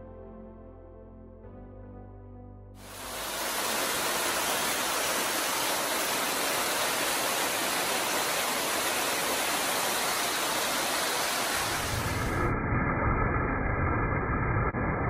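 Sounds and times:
waterfall splashing on rock: 2.8 - 12.3.

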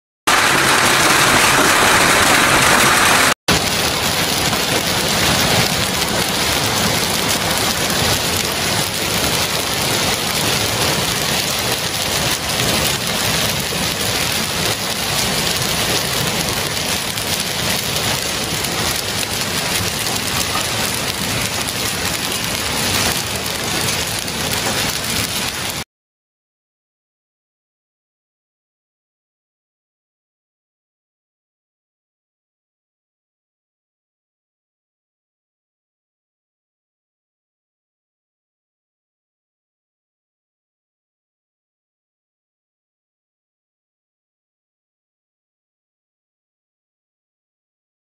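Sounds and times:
hail pelting pavement and cars: 0.3 - 25.8.

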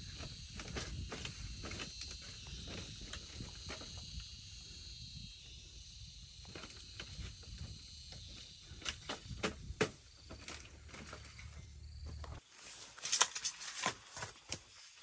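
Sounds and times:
bamboo bed creaking and clicking: 0.0 - 4.1, 6.4 - 14.8
high insect buzz: 0.0 - 13.6.

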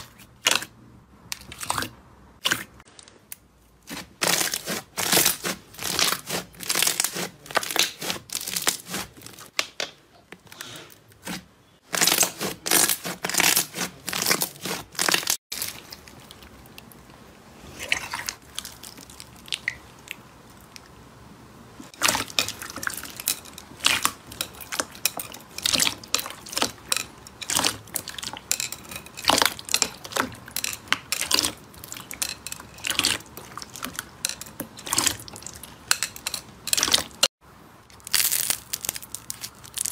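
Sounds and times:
foam bead slime crunching: 3.0 - 9.6, 10.6 - 16.4, 37.9 - 39.9.

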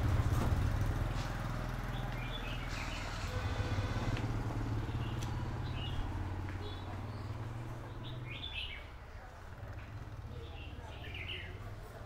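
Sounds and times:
motorbike engine humming: 0.0 - 12.0.

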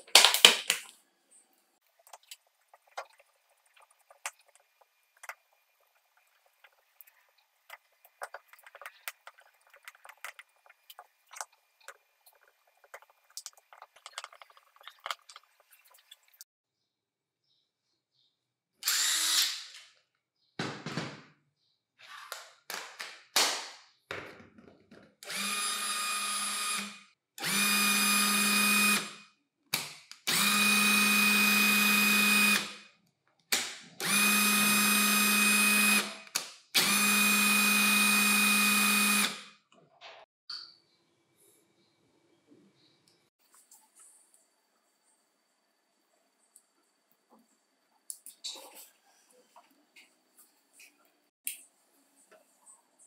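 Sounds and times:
impact driver motor whine: 36.8 - 39.4.

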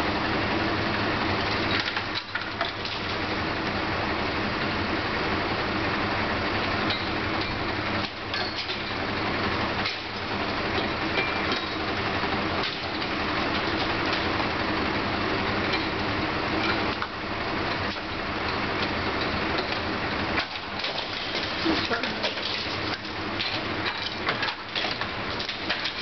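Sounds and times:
truck engine running: 0.0 - 26.0.

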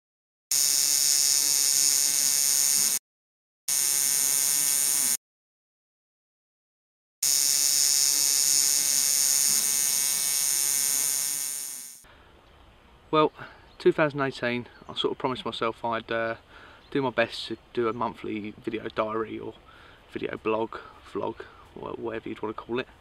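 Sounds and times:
tattoo machine buzzing: 0.5 - 3.0, 3.7 - 5.2, 7.2 - 12.0.

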